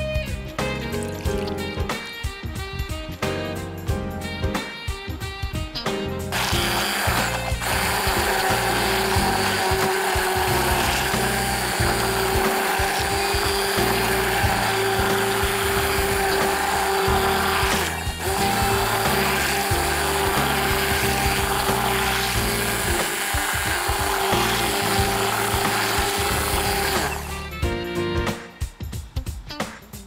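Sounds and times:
immersion blender whine: 6.3s - 27.6s.

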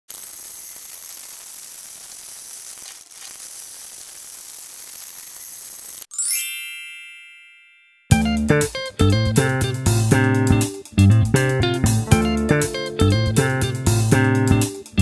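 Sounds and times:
dry pasta pouring into glass dish: 0.1s - 6.1s
bright chime: 6.1s - 8.2s.

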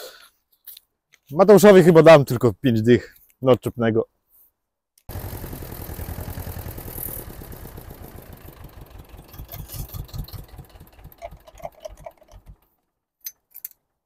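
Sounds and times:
tractor diesel engine running: 5.1s - 12.8s.

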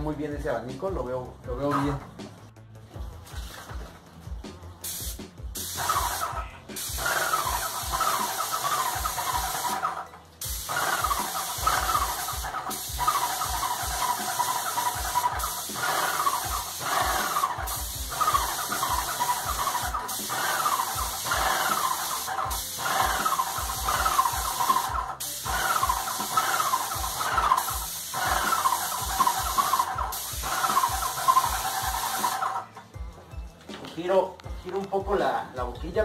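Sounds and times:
paint spray hiss: 4.8s - 32.6s.

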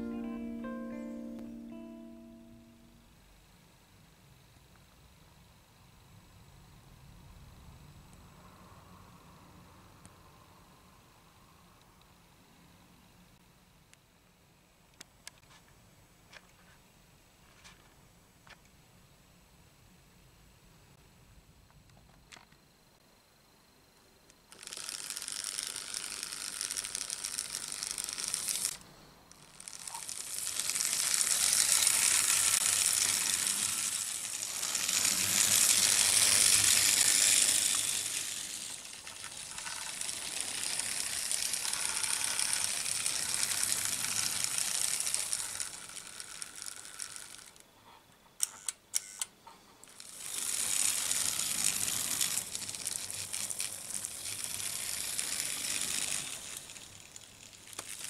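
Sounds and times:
model train wheels clattering: 24.5s - 47.6s, 49.8s - 58.0s.

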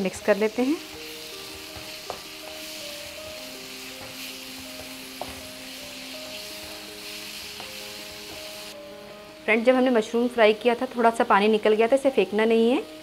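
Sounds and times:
mushrooms sizzling in a frying pan: 0.0s - 13.0s
soft background music: 0.0s - 13.0s
wooden spatula stirring: 0.1s - 8.7s.

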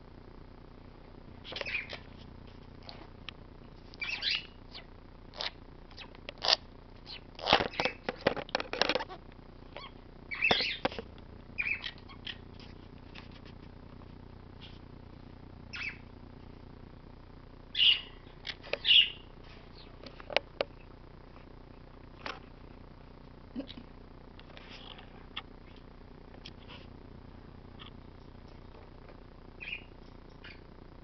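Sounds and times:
parrot chirps and chatter: 1.4s - 2.1s, 4.0s - 8.1s, 9.8s - 10.9s, 11.6s - 12.7s, 15.7s - 16.0s, 17.7s - 19.2s, 29.6s - 30.7s
loud parrot calls: 4.0s - 7.9s, 9.8s - 10.8s, 11.6s - 12.4s, 15.7s - 16.0s, 17.7s - 18.2s, 18.8s - 19.2s, 29.6s - 30.6s.

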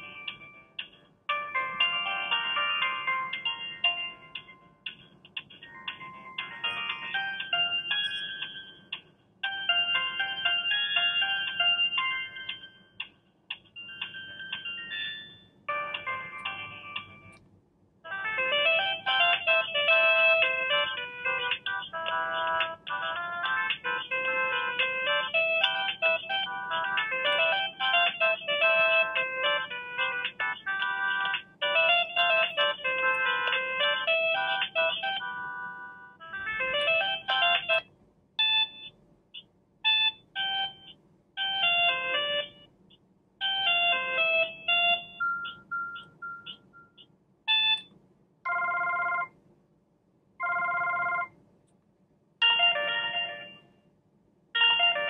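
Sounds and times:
tinny phone ringtone melodies: 0.0s - 17.4s, 18.0s - 39.0s, 39.8s - 42.7s, 43.4s - 47.9s, 48.5s - 49.4s, 50.4s - 51.4s, 52.4s - 53.8s, 54.6s - 55.0s
phone beeps: 6.6s - 8.6s, 38.4s - 39.0s, 43.4s - 47.9s.

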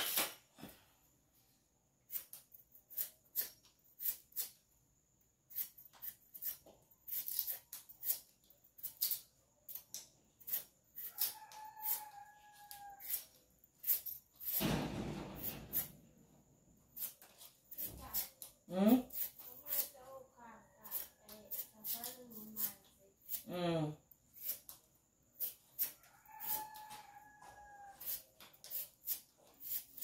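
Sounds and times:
knife clicking through yam: 5.5s - 12.0s.

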